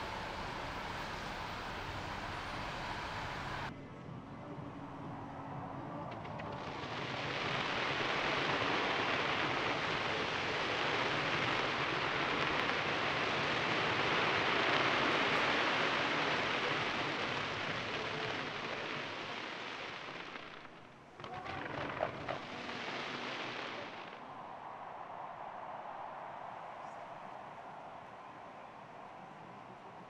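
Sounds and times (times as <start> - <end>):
fireworks crackling: 0.0 - 3.7, 6.1 - 24.3.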